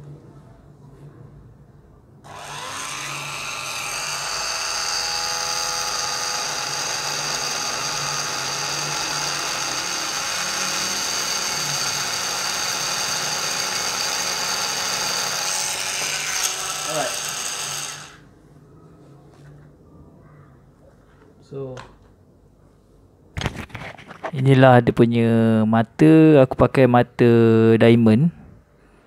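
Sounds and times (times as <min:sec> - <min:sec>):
electric rotary tool whine: 0:02.3 - 0:18.2.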